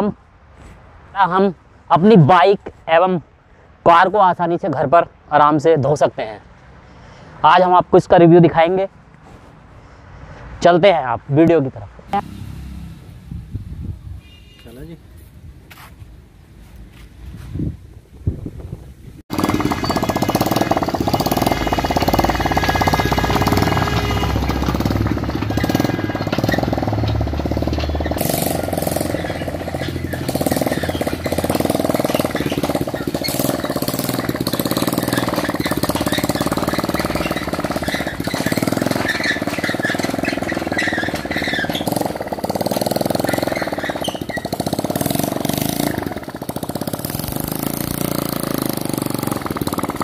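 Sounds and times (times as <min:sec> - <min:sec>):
motorcycle engine running: 0:12.2 - 0:13.9, 0:19.3 - 0:50.0.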